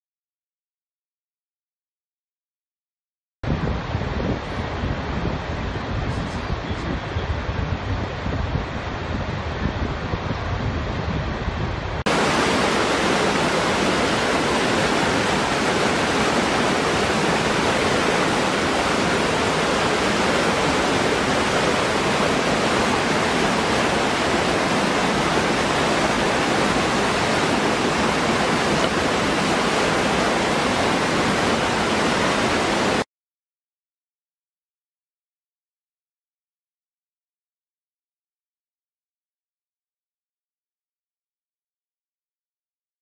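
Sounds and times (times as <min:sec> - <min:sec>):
waterfall rushing into pool: 0:12.0 - 0:33.1.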